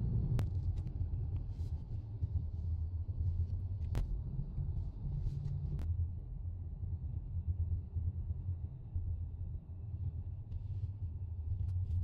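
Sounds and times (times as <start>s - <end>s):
car engine and tyres rumbling: 0.0s - 7.2s.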